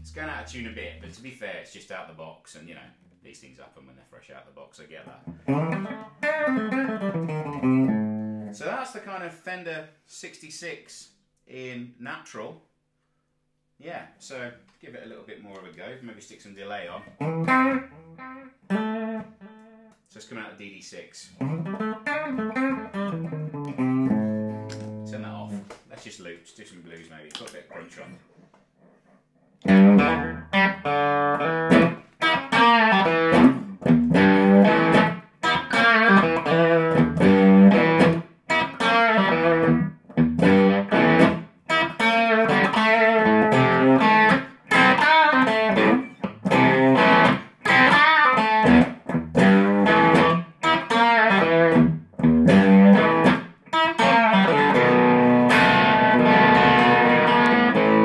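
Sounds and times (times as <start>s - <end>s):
overdriven electric guitar: 5.3s - 8.6s, 17.1s - 19.9s, 21.4s - 25.7s, 29.6s - 58.0s.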